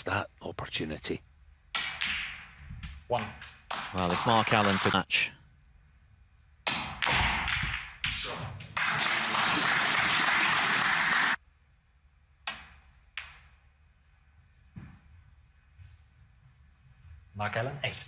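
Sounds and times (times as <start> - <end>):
snooker balls knocking: 6.7 - 8.2.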